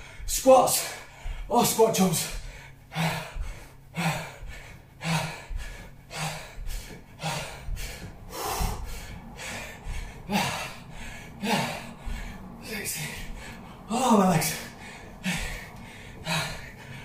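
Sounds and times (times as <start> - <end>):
man breathing hard: 0.0 - 17.0.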